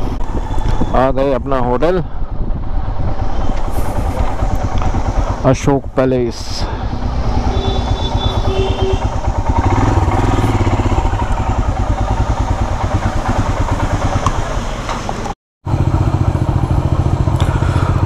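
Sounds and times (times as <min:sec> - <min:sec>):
motorcycle engine at low revs: 0:02.3 - 0:18.0.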